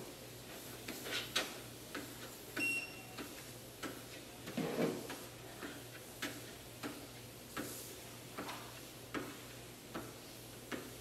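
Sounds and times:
footsteps on treadmill belt: 0.0 - 11.0
treadmill motor hum: 0.0 - 11.0
short high beep: 2.6 - 3.2.

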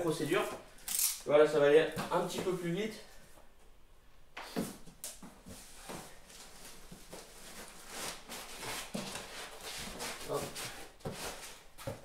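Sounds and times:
cardboard and foam rustling: 5.4 - 12.0.

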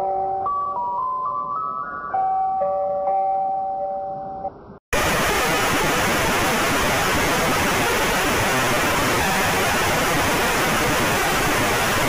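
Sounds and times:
harsh static alarm hiss: 5.0 - 12.0.

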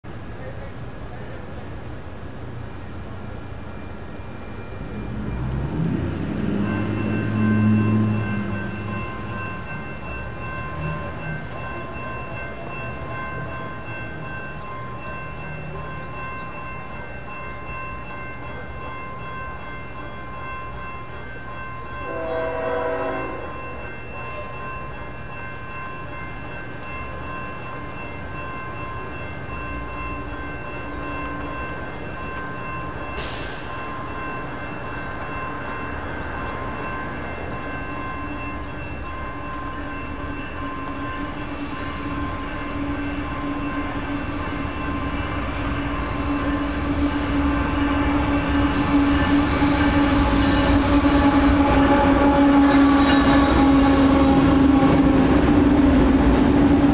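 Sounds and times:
diesel freight train rumble: 0.0 - 56.9
crossing warning bell ringing: 0.1 - 56.9
train air horn blast: 22.1 - 23.6, 46.3 - 55.2.

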